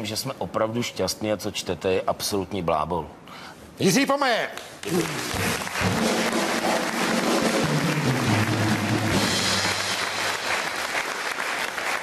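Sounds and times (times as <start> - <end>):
audience applause: 4.8 - 12.0
band music with drums and bass: 5.3 - 10.5.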